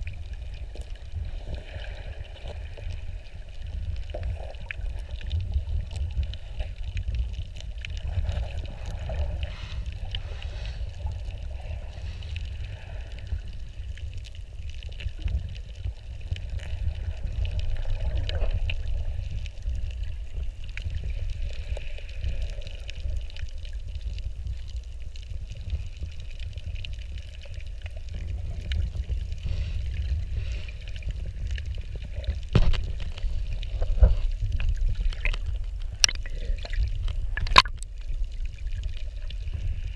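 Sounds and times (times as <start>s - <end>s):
faint clicks and crackles: 0.0s - 39.9s
underwater rumble: 0.0s - 39.9s.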